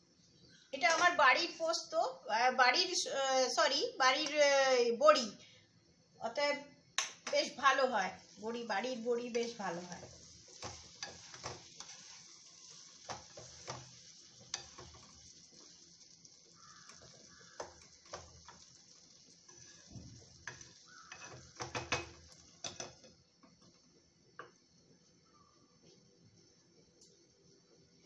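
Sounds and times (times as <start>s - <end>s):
faint sizzle: 0.0s - 28.0s
spatula scraping a pan: 9.3s - 15.8s, 16.6s - 23.0s.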